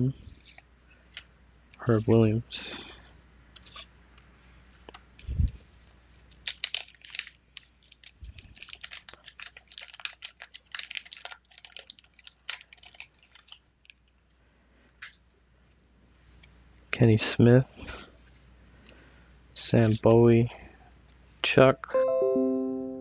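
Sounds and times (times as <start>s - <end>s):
paper wrapper crinkling: 0.3s - 2.2s, 3.5s - 3.9s, 4.7s - 14.3s.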